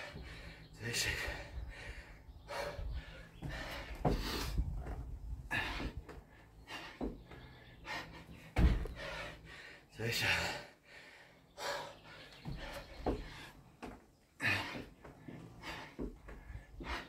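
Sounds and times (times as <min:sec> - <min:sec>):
man breathing hard: 0:00.0 - 0:17.0
heavy thump: 0:08.5 - 0:09.1.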